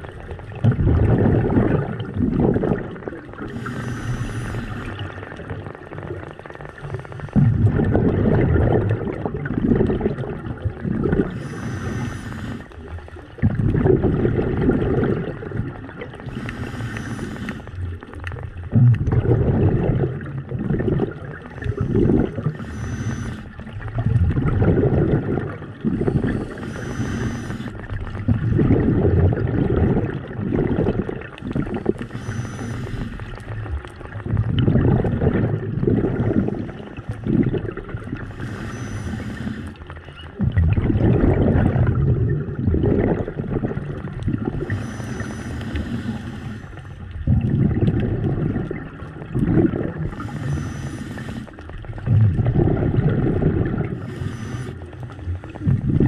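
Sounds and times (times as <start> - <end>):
exhaled bubbles rushing: 0.0 - 56.0
regulator inhale hiss: 3.5 - 5.1, 11.3 - 12.8, 16.2 - 17.9, 21.6 - 23.8, 25.9 - 28.0, 31.7 - 33.5, 38.2 - 39.9, 44.6 - 47.1, 50.0 - 51.7, 54.0 - 55.3.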